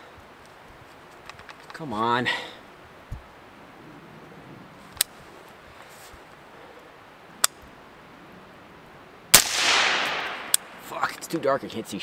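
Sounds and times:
suppressed rifle shot with echo: 0:09.3 - 0:10.9.

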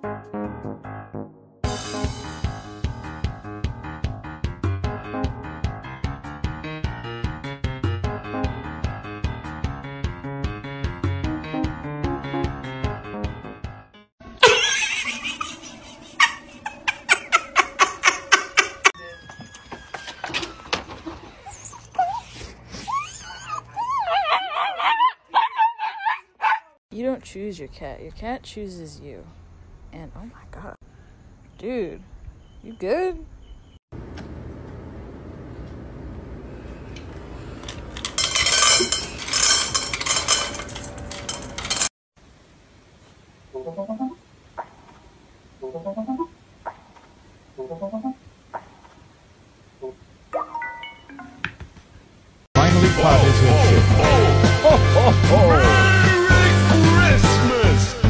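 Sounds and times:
person laughing: 0:14.4 - 0:19.0, 0:53.9 - 0:55.8
kibble rattling in a metal bowl: 0:38.0 - 0:41.9.

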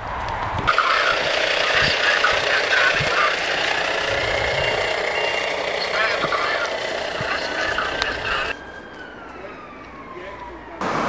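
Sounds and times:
thin high whine: 0:00.7 - 0:08.6
diesel engine running: 0:00.7 - 0:09.2.

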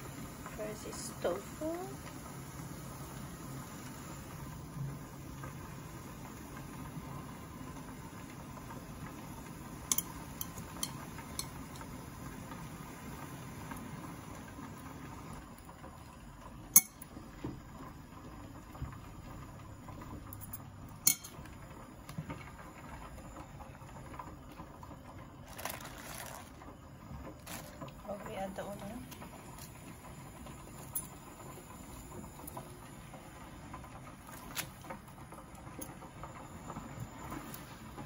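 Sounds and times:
low steady hum: 0:00.0 - 0:38.0
metal chopsticks clinking on plate: 0:09.9 - 0:11.6, 0:21.1 - 0:21.4.

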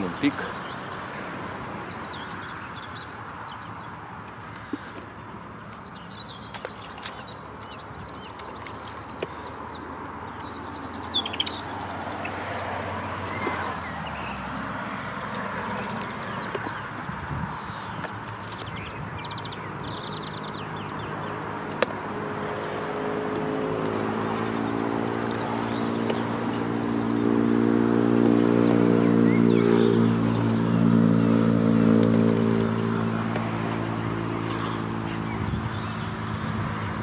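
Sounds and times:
vehicle engine passing by: 0:21.7 - 0:37.0.

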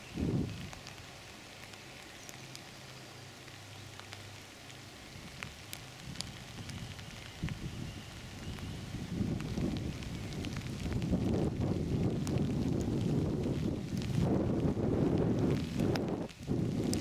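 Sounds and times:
wind rumble on microphone: 0:00.0 - 0:01.1, 0:05.1 - 0:17.0
light ticks and pattering: 0:00.0 - 0:17.0.

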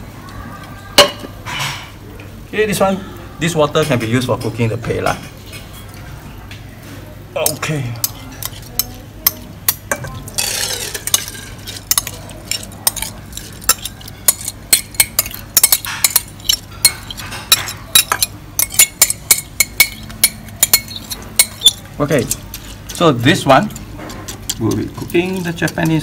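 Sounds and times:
metal spoon scraping ceramic bowl: 0:10.3 - 0:26.0.

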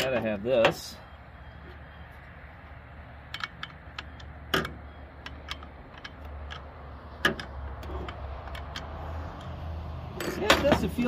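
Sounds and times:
plastic and metal parts clicking: 0:03.2 - 0:09.6.

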